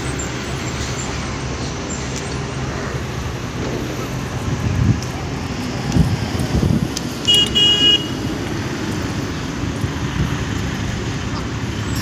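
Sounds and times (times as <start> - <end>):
vehicle horn beeps: 7.2 - 8.2.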